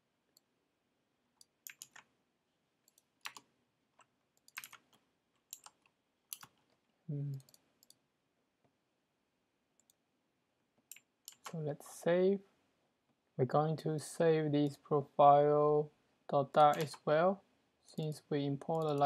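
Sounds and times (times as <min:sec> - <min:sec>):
keyboard keystrokes: 0:04.4 - 0:06.6, 0:16.6 - 0:17.0
person humming: 0:07.1 - 0:07.5.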